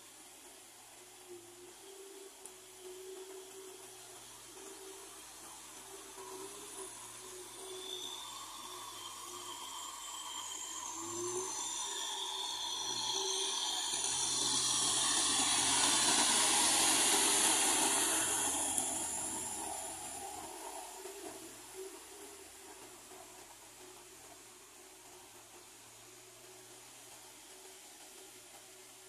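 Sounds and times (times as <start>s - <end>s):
tractor diesel engine under load: 5.5s - 25.0s.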